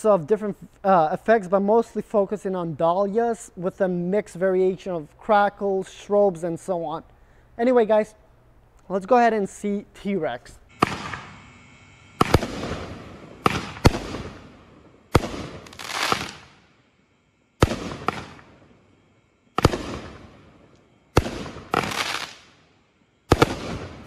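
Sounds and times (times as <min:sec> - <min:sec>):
fireworks bangs: 0:10.7 - 0:16.7, 0:17.6 - 0:18.7, 0:19.5 - 0:22.5, 0:23.3 - 0:24.0
fireworks hiss and crackle: 0:10.7 - 0:16.9, 0:17.6 - 0:18.9, 0:19.5 - 0:24.0.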